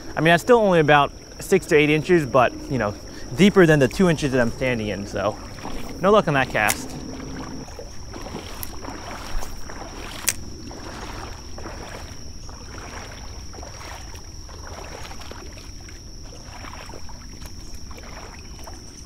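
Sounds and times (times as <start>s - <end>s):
steady high-pitched tone: 0.0s - 7.8s
creek water running and splashing: 0.0s - 19.0s.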